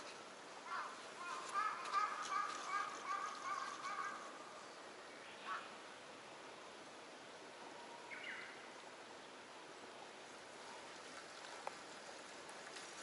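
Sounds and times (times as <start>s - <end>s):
outdoor hiss: 0.0s - 13.0s.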